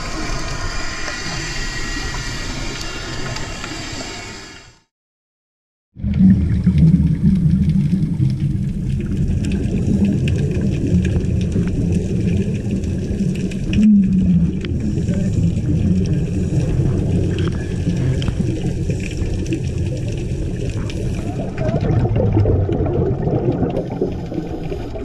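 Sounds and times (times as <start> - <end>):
underwater regulator bubbles rumbling: 6.0 - 25.0.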